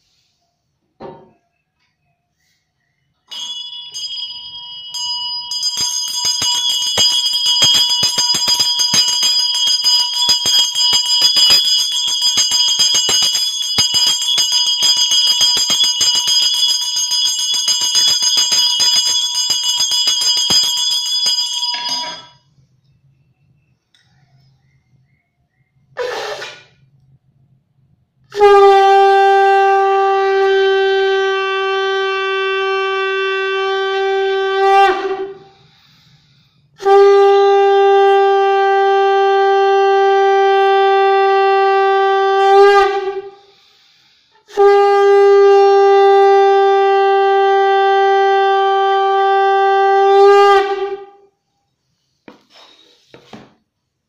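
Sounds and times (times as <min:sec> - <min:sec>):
conch shell blasts: 0:28.3 - 0:36.0, 0:36.8 - 0:43.7, 0:44.4 - 0:51.3.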